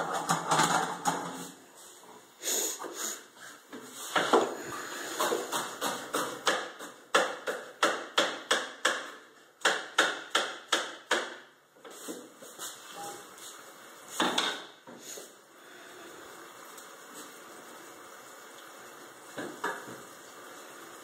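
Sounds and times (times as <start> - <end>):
knife chopping on cutting board: 5.2 - 11.4.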